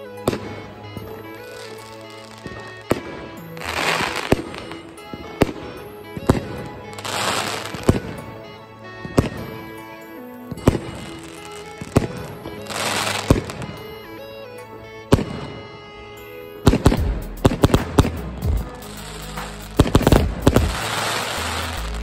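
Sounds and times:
fireworks crackling: 0:00.0 - 0:08.4, 0:10.6 - 0:14.0, 0:16.6 - 0:22.0
background music: 0:00.0 - 0:22.0
fireworks bangs: 0:00.3 - 0:08.3, 0:10.6 - 0:13.9, 0:18.8 - 0:22.0.

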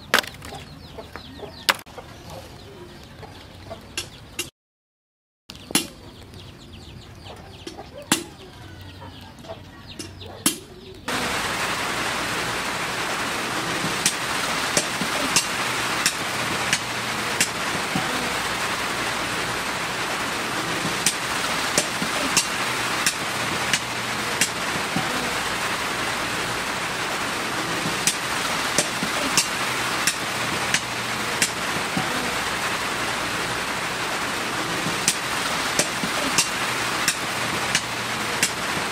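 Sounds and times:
chickens clucking: 0:00.0 - 0:04.5, 0:05.5 - 0:38.9
steady hiss with sharp clicks: 0:11.1 - 0:38.9.

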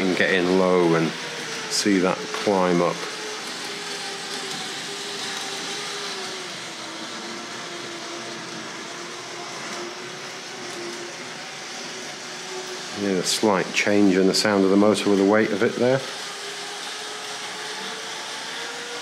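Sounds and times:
electric motor hum: 0:00.0 - 0:19.0.

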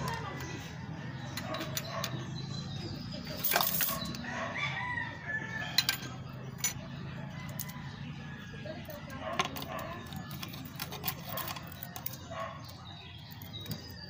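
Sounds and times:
rooster crowing: 0:04.2 - 0:05.9.

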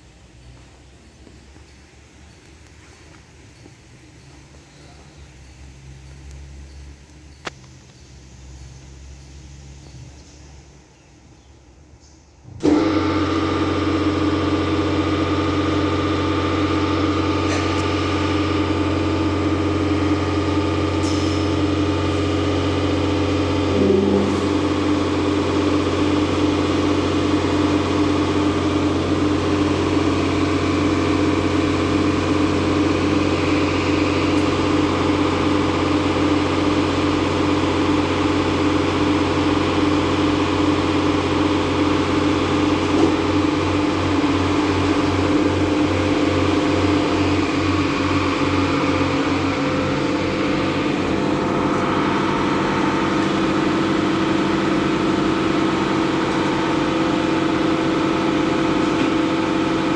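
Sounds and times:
pump drone: 0:12.5 - 0:59.9.

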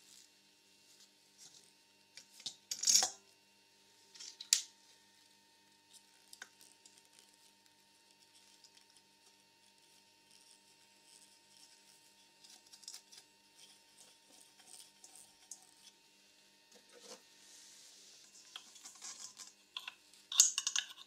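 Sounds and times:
metal disc rattling in bowl: 0:18.2 - 0:21.0.

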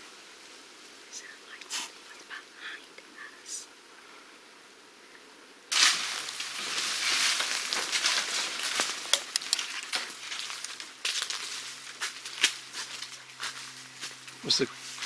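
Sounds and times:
footsteps crunching dry leaves: 0:05.7 - 0:15.0.

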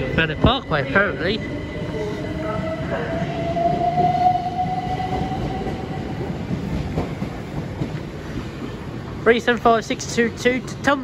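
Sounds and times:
train high whine: 0:00.0 - 0:07.6
electric train rumble: 0:00.0 - 0:10.9.

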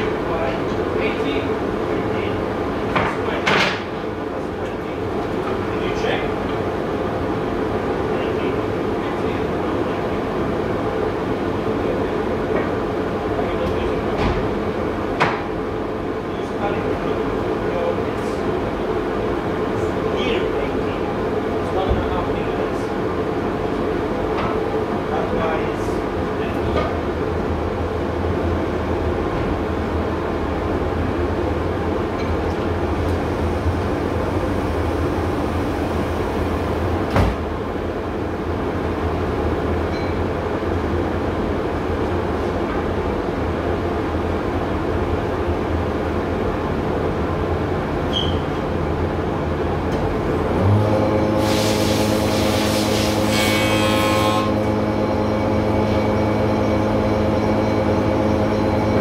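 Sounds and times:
dust extractor running: 0:32.6 - 0:37.1, 0:50.1 - 0:59.0.

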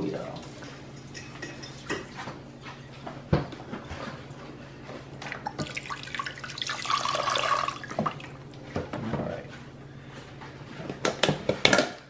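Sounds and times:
liquid pouring into pot: 0:05.4 - 0:08.4.

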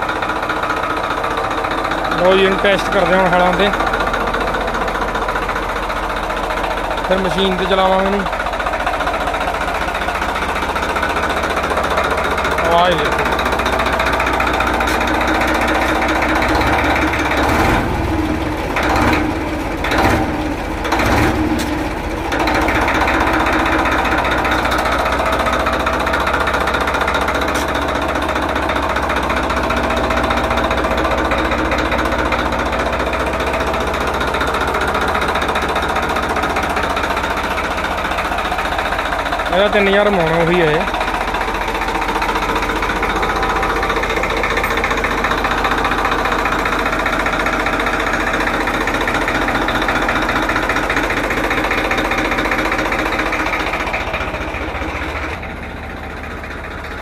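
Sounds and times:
tractor diesel engine clattering: 0:00.0 - 0:57.0.

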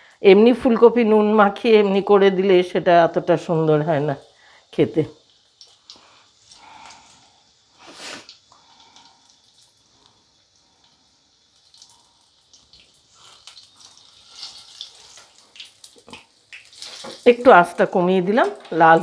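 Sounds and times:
deep-frying sizzle: 0:00.9 - 0:19.0
oil crackling and popping: 0:05.1 - 0:19.0.

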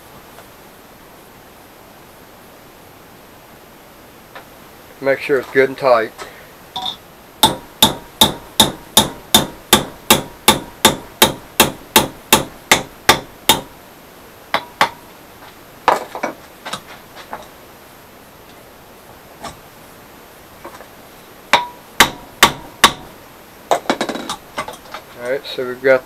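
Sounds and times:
hammer striking steel rod: 0:06.8 - 0:13.7, 0:21.5 - 0:23.1.

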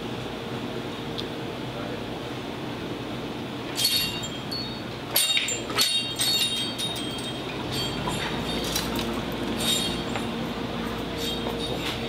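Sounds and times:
low shop hum: 0:00.0 - 0:12.0
metal wind chimes ringing: 0:03.8 - 0:12.0.

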